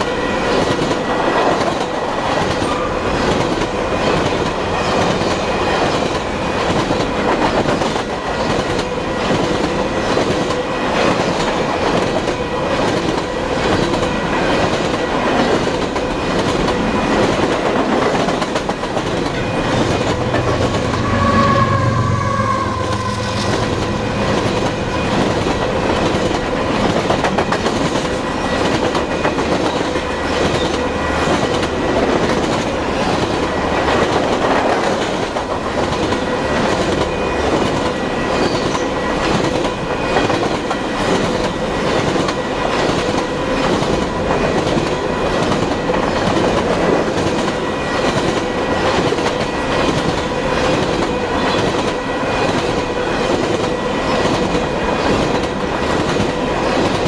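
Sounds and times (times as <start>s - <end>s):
freight cars rumbling past: 18.4s - 27.0s.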